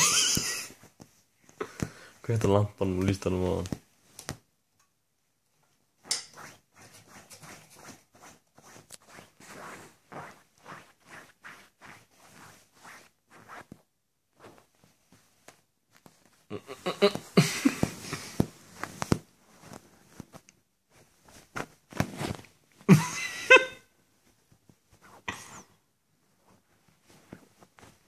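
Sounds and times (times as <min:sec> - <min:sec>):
fabric rustling and rubbing: 0:05.8 - 0:16.5, 0:17.1 - 0:22.9, 0:24.0 - 0:28.0.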